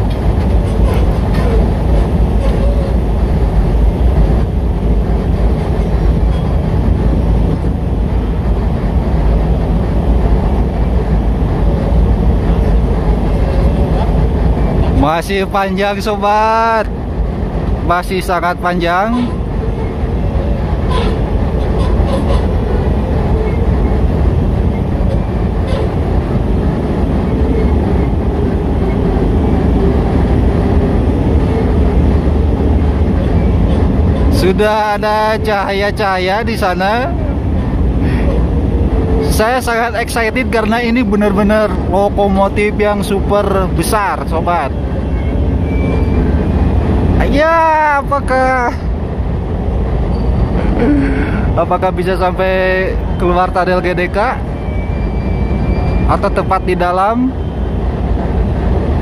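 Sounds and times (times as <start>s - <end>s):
diesel locomotive rumble: 0.0s - 59.0s
train wagons rolling: 0.0s - 59.0s.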